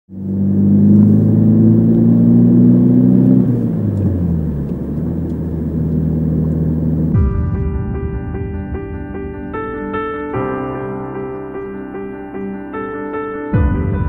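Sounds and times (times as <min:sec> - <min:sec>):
road noise inside car: 0:00.1 - 0:07.2
car engine: 0:00.1 - 0:10.4.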